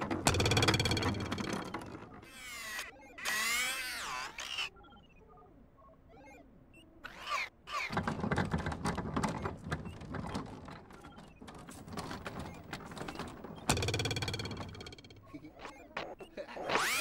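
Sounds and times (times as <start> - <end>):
rapid clicking rattling clatter: 0.0 - 2.2, 7.9 - 15.4
cartoon warbling squeaks: 2.2 - 5.0, 6.1 - 6.4, 7.0 - 8.0, 14.5 - 17.0.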